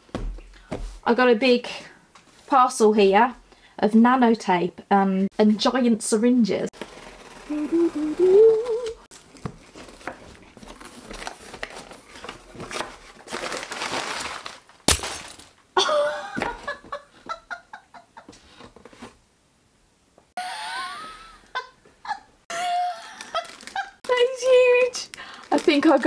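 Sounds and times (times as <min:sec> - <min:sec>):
person humming a rising tune: 0:07.5 - 0:09.0
packing paper rustling: 0:09.1 - 0:15.0, 0:22.8 - 0:26.0
laughter: 0:15.8 - 0:18.4, 0:20.4 - 0:24.0.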